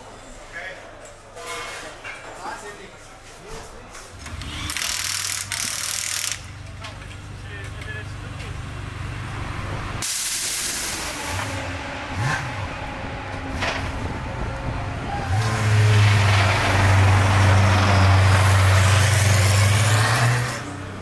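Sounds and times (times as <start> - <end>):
race car engine revving: 10.9 - 21.0.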